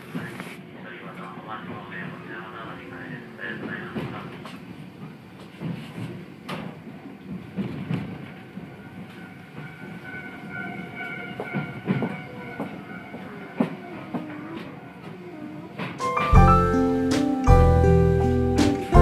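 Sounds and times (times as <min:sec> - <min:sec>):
streetcar running noise: 0:00.0 - 0:19.0
high wheel squeal: 0:08.7 - 0:15.4.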